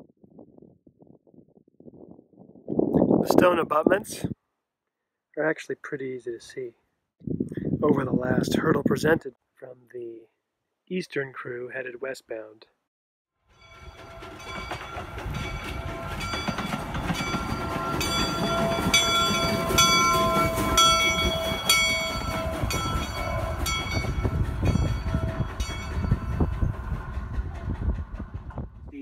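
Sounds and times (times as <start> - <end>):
steam locomotive rumbling on rails: 13.6 - 29.0.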